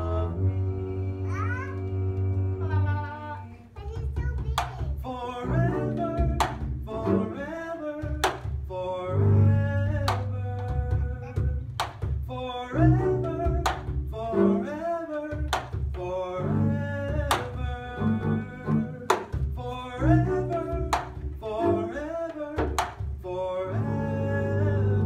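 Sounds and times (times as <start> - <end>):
double bass playing: 0.0 - 3.6, 4.4 - 25.0
sharp percussive knock: 3.9 - 5.0, 6.3 - 6.8, 8.0 - 8.7, 10.0 - 12.3, 15.3 - 16.0, 19.0 - 19.6, 22.6 - 23.2.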